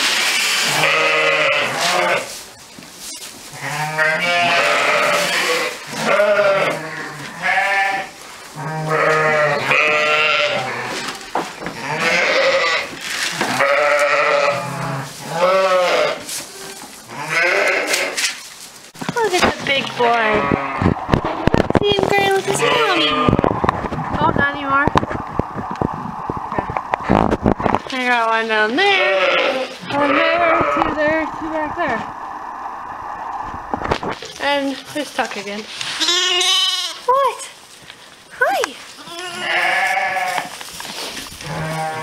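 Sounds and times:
sheep bleating: 0.7 - 2.4, 3.6 - 11.0, 11.8 - 12.9, 13.5 - 16.2, 17.1 - 18.2, 22.3 - 23.4, 28.8 - 31.0, 36.0 - 37.0, 39.0 - 40.5, 41.4 - 42.0.

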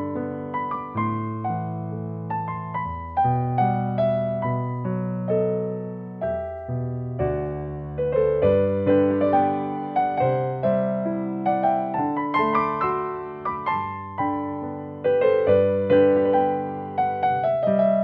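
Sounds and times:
solo piano music: 0.0 - 18.0.

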